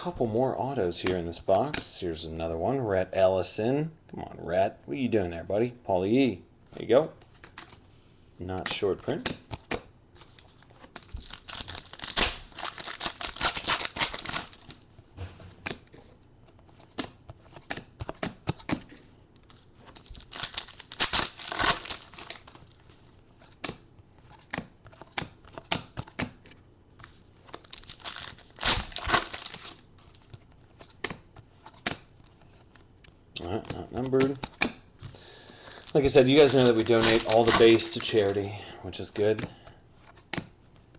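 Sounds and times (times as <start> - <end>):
foil wrappers tearing and crinkling: 10.9 - 14.7, 19.9 - 22.7, 27.5 - 29.8, 35.7 - 38.5.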